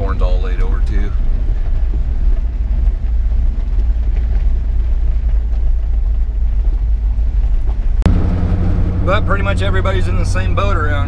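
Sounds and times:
road and engine rumble in cab: 0:00.0 - 0:11.0
steady high hum: 0:05.3 - 0:11.0.

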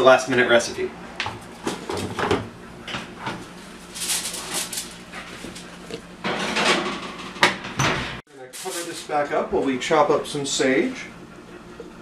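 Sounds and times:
foil rustling and scraping: 0:03.5 - 0:06.1, 0:08.5 - 0:09.1
oven door knocks: 0:06.2 - 0:08.2.

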